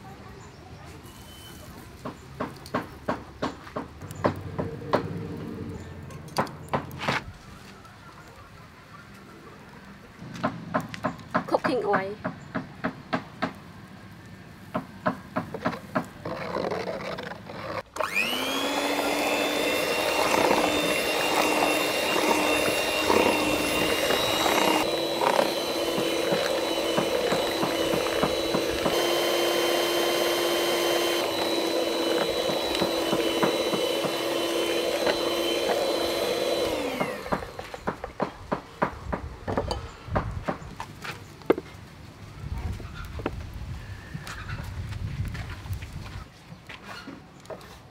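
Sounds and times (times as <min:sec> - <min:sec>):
electric mixer whirring: 0:17.4 - 0:37.9.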